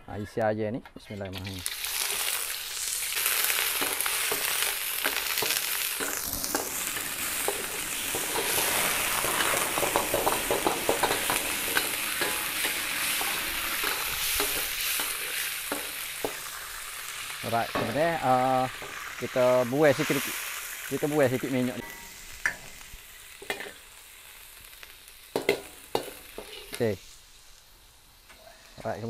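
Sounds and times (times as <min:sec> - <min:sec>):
chicken sizzling in hot oil: 0:01.4 - 0:28.8
ladle scraping and clinking on wok: 0:03.7 - 0:16.5, 0:23.4 - 0:23.8.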